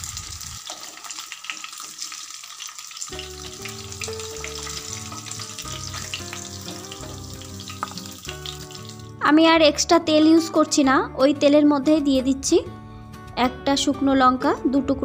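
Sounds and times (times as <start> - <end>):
fish sizzling in hot oil: 0.0 - 9.2
soft background music: 3.1 - 15.0.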